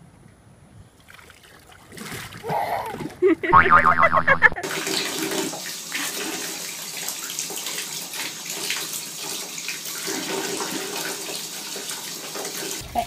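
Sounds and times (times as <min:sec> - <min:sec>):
tap water running into bath: 0:04.6 - 0:12.8.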